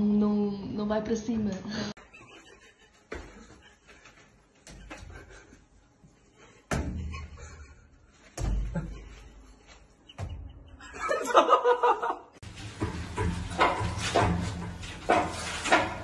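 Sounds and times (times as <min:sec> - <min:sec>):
dull thumps: 0:06.7 - 0:07.4
person laughing: 0:08.5 - 0:09.4, 0:10.1 - 0:12.3.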